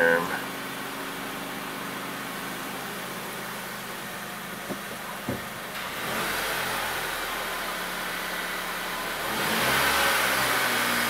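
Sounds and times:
car engine idling and revving: 0:00.0 - 0:11.0.

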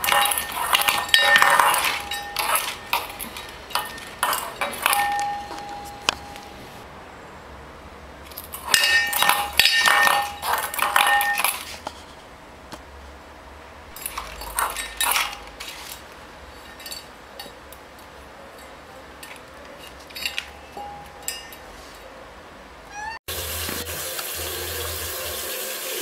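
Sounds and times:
metal bowl clattering on tiles: 0:00.0 - 0:06.8, 0:08.3 - 0:11.8, 0:13.9 - 0:17.7, 0:18.5 - 0:21.7.

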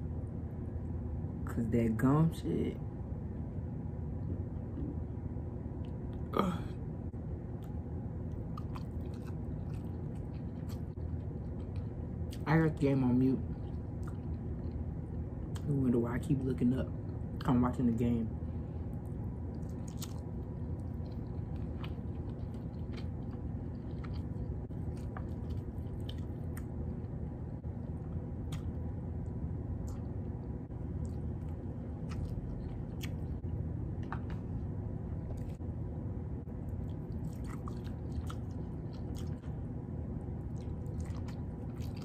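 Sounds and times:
steady low hum: 0:00.0 - 0:42.0
person chewing and smacking: 0:07.6 - 0:12.4, 0:13.5 - 0:15.7, 0:19.0 - 0:28.9, 0:29.8 - 0:35.6, 0:36.7 - 0:39.6, 0:40.4 - 0:42.0.

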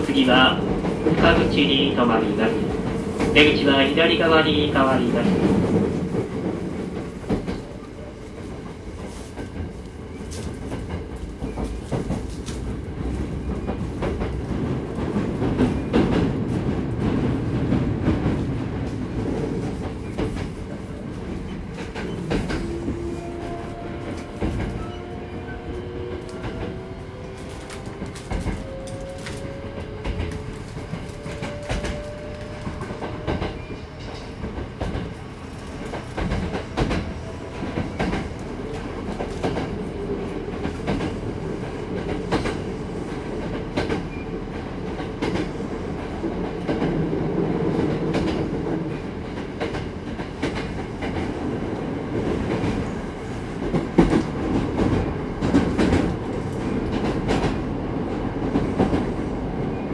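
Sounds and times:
electric train rumble: 0:00.0 - 0:59.9.

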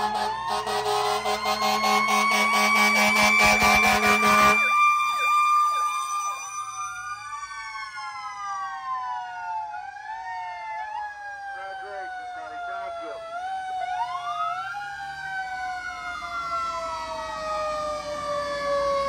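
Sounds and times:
loud steady horn blast: 0:00.0 - 0:05.3
sirens wailing and yelping: 0:00.0 - 0:19.0.

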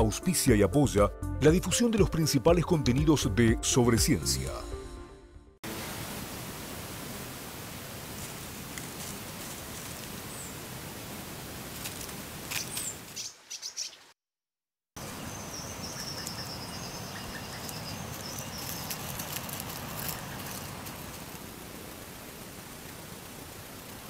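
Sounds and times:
steady hiss: 0:05.7 - 0:13.1, 0:15.0 - 0:24.0
small birds chirping: 0:12.5 - 0:14.2, 0:15.0 - 0:21.4.

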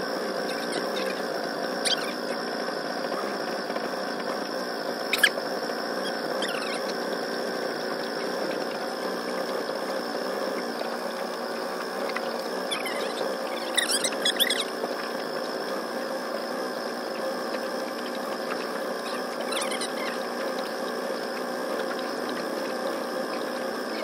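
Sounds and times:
small boat motor buzzing: 0:00.0 - 0:24.0
short squeaks and chirps: 0:01.8 - 0:02.3, 0:05.1 - 0:05.4, 0:06.0 - 0:07.0, 0:12.0 - 0:14.7, 0:18.5 - 0:20.2.

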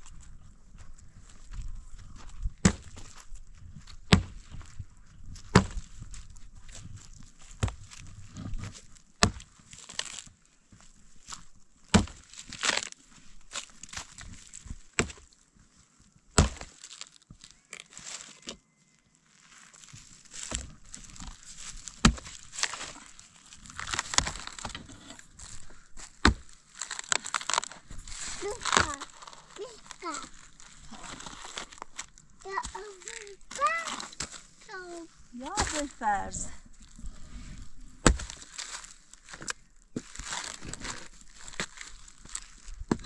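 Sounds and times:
wood chips crunching and rustling: 0:00.0 - 0:43.0
axe chopping firewood: 0:02.6 - 0:03.0, 0:04.1 - 0:04.5, 0:05.5 - 0:05.8, 0:09.2 - 0:09.5, 0:11.9 - 0:12.9, 0:14.9 - 0:15.2, 0:16.4 - 0:16.7, 0:21.9 - 0:23.0, 0:26.0 - 0:27.8, 0:35.5 - 0:35.9, 0:38.0 - 0:38.6.

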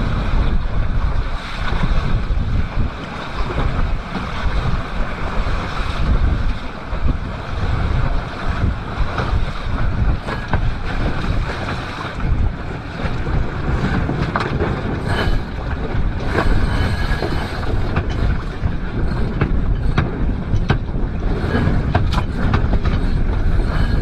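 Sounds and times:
water rushing along hull: 0:00.0 - 0:24.0
wind buffeting microphone: 0:00.0 - 0:24.0.

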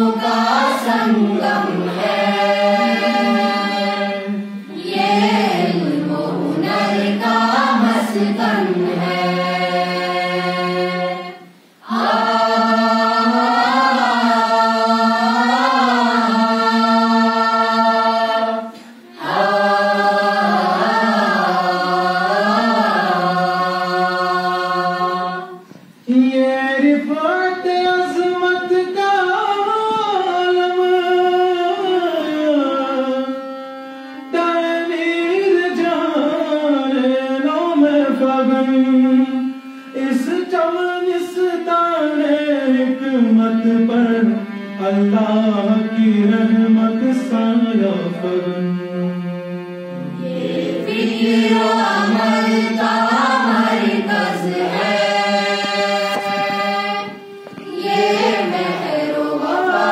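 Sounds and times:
voices singing an anthem: 0:00.0 - 0:27.3, 0:50.0 - 0:59.9.

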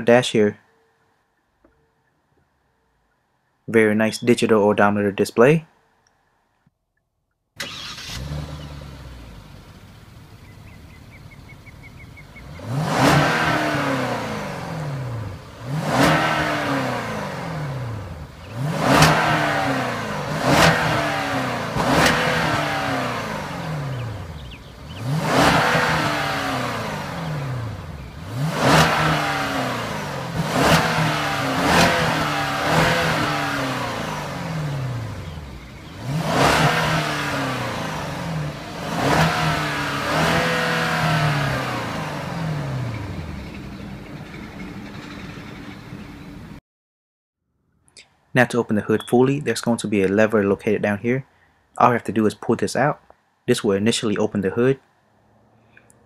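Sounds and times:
car engine idling and revving: 0:07.6 - 0:46.6.

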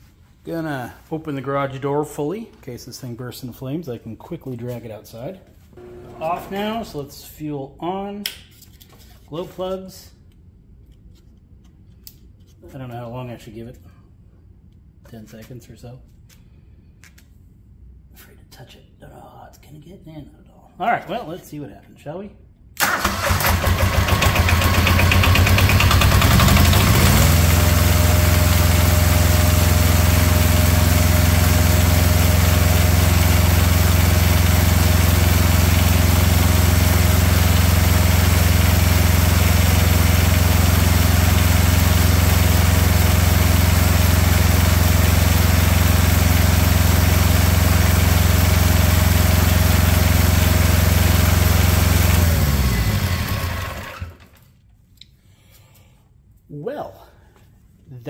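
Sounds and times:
small diesel engine running: 0:05.8 - 0:07.0, 0:22.8 - 0:54.4.

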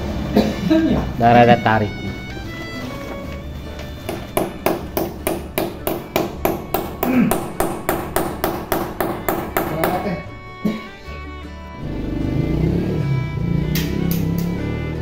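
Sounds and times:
hammer tapping: 0:03.8 - 0:10.8.

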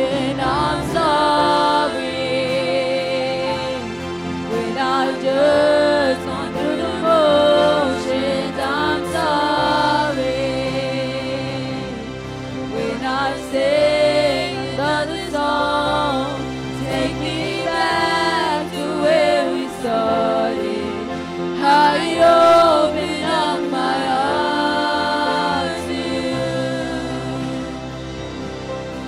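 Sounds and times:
sustained instrumental chords: 0:00.0 - 0:29.0.

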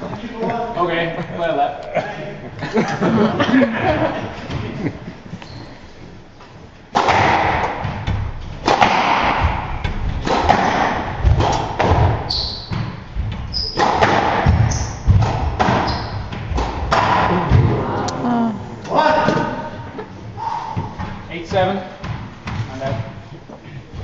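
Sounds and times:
shoe squeaks on wooden floor: 0:05.4 - 0:05.9, 0:12.2 - 0:13.9, 0:15.8 - 0:16.3
squash ball hitting rackets and walls: 0:06.8 - 0:17.8, 0:20.8 - 0:24.0.

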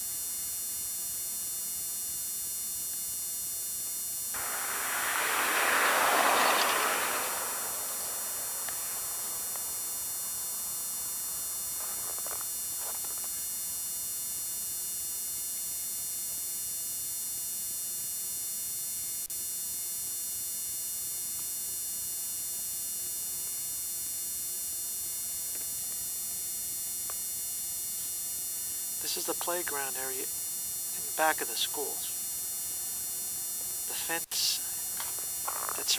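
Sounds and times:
camcorder recording hiss: 0:00.0 - 0:15.9, 0:27.0 - 0:35.9
faint rustle: 0:04.4 - 0:13.5
thin high-pitched whine: 0:04.4 - 0:14.6, 0:28.0 - 0:35.9.

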